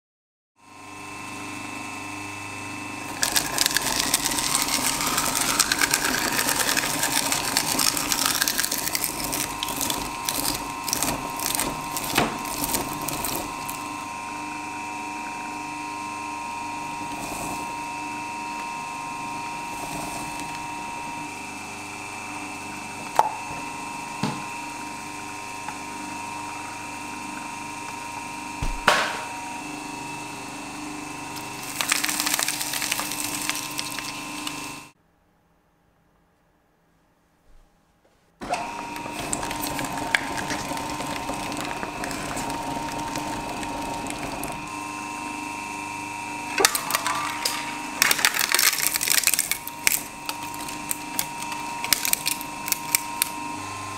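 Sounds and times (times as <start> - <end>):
shredder motor humming: 0.6 - 35.0, 38.4 - 53.9
cracking and crunching in shredder: 3.0 - 14.2, 31.2 - 34.9, 38.4 - 45.2, 46.5 - 53.4
sharp knocks on blades: 28.6 - 29.3.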